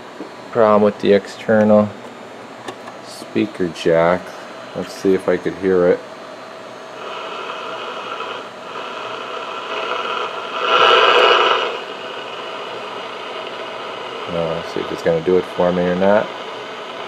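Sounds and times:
radio static hiss: 6.7 - 17.0.

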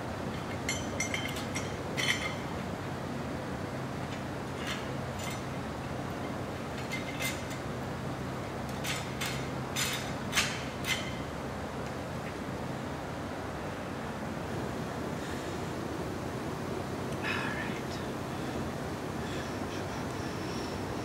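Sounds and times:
large shop fan: 0.0 - 21.0
steel leaf springs clinking: 0.3 - 2.6, 4.0 - 7.8, 8.7 - 11.3.

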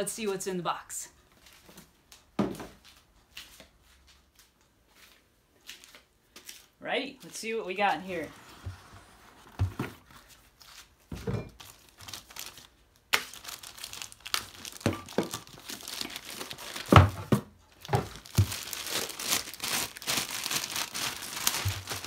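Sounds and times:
plastic bag crinkling: 11.6 - 22.0
cardboard packaging handled: 13.3 - 22.0.

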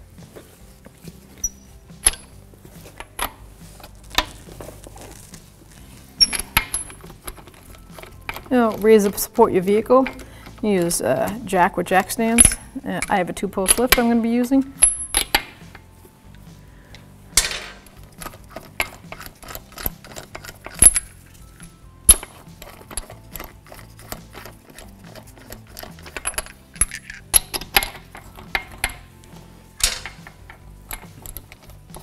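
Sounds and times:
lug nuts clinking: 0.5 - 5.2, 6.1 - 32.0.

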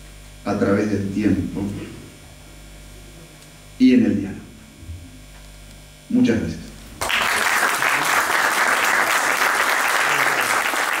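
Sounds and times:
man speaking: 0.5 - 2.1
audience applauding: 7.0 - 11.0.

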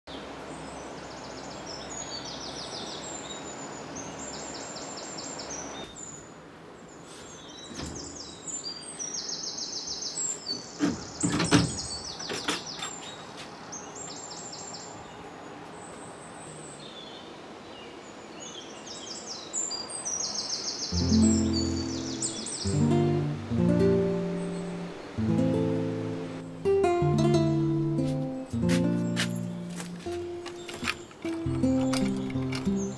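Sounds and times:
steady background hiss: 0.1 - 32.9
wooden window panels knocking: 10.8 - 12.9
birds trilling: 20.8 - 26.4, 28.8 - 32.9.

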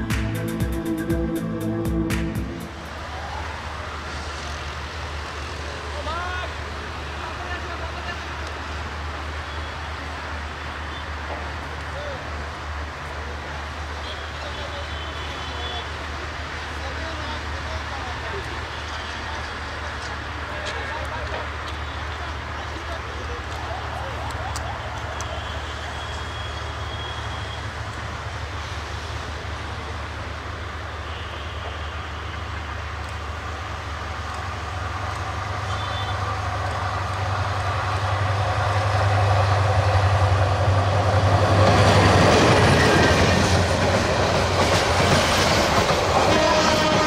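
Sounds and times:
diesel locomotive engine drone: 0.0 - 47.0
train wheels clattering on rails: 31.6 - 47.0.

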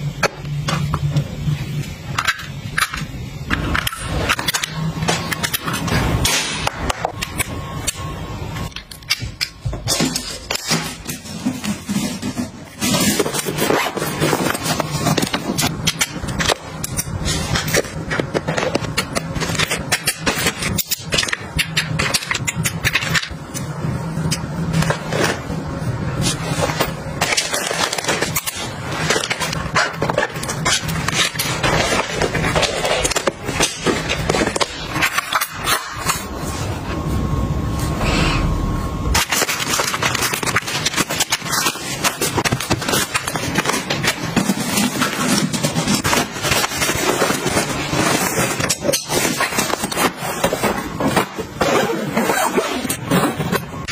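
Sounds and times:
low steady hum: 0.0 - 53.9
plastic and fabric rustling: 39.1 - 53.9.

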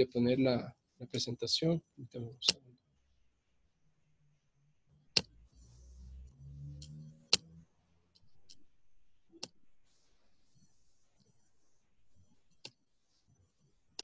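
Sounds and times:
computer mouse clicking: 5.1 - 5.3, 6.2 - 8.7, 12.5 - 12.8.

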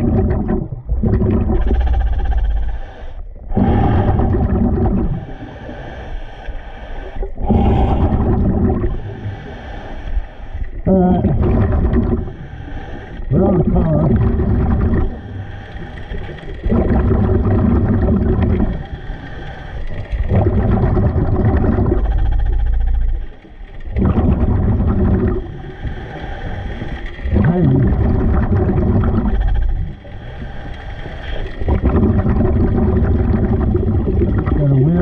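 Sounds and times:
bubbling exhale underwater: 0.0 - 2.8, 3.4 - 5.6, 7.3 - 9.5, 10.8 - 19.0, 20.0 - 23.2, 23.9 - 26.1, 27.2 - 30.0, 31.3 - 35.0
regulator inhales: 5.2 - 8.2, 8.9 - 10.8, 12.3 - 13.3.

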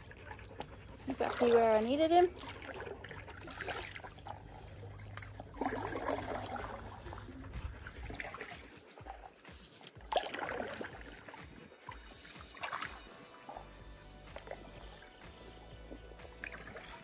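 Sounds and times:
paddle strokes in water: 0.0 - 17.0
water trickling off paddle: 0.0 - 17.0.

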